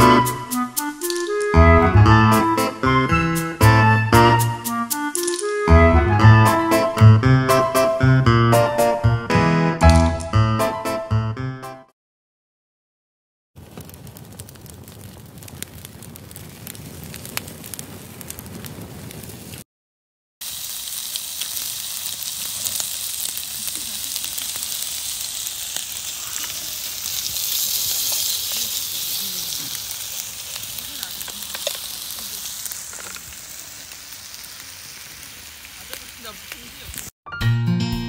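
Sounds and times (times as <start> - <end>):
wood fire crackling: 0.0 - 7.2, 13.6 - 19.6, 20.4 - 37.1
rice sizzling in a pan: 20.4 - 37.2.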